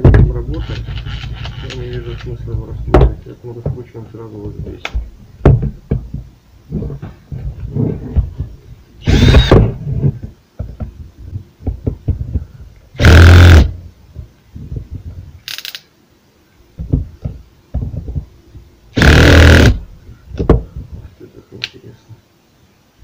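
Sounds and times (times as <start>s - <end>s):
cordless drill running: 9.0s - 9.6s, 13.0s - 13.7s, 19.0s - 19.8s.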